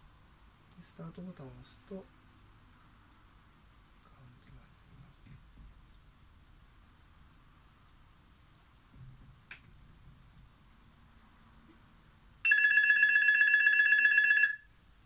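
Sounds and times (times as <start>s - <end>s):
high-pitched electronic buzzer: 12.5s - 14.7s.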